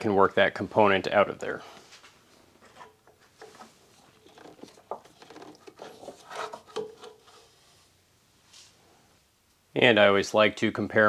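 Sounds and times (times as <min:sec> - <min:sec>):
rubbing and light knocks: 0:01.8 - 0:08.0.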